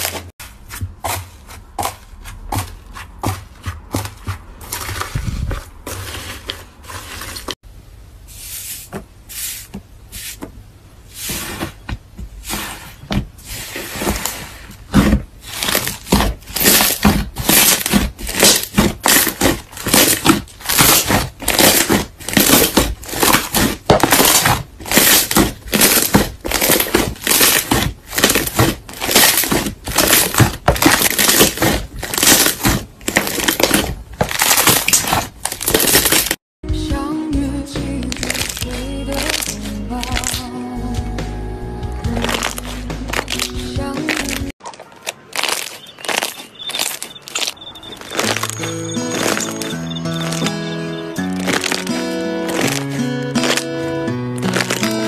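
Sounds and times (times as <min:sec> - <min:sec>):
slime crackling and popping: 0:15.4 - 0:36.4, 0:38.0 - 0:40.5, 0:42.2 - 0:50.5, 0:51.2 - 0:53.7, 0:54.3 - 0:55.0.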